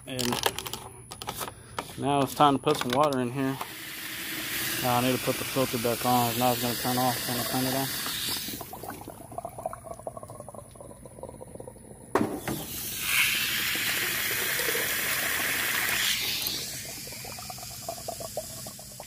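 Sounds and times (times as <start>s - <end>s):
water pouring into plastic reservoir: 3.7s - 19.0s.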